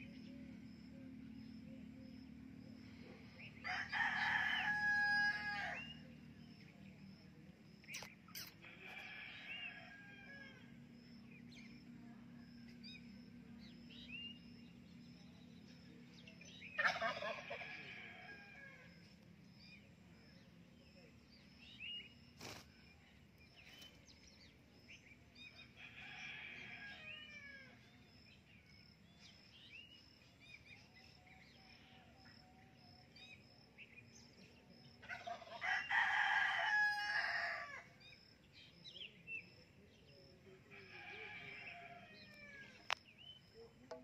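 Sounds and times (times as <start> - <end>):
faint bird chirps: 7.7 - 8.7.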